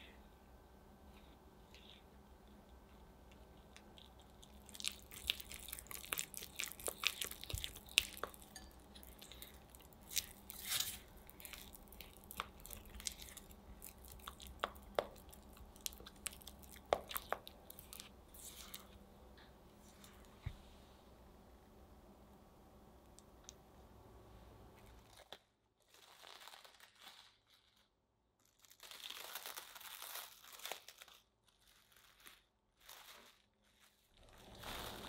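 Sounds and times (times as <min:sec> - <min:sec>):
spatula scraping glass bowl: 0:10.5 - 0:11.1.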